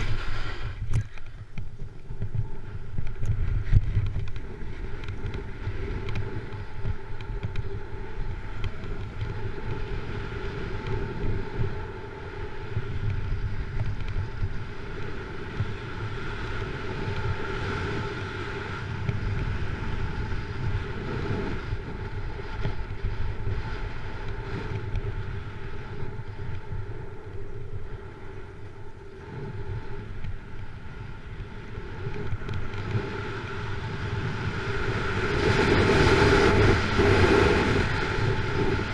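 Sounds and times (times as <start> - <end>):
wind rushing: 0.0 - 13.7
snowboard carving over snow: 0.0 - 38.9.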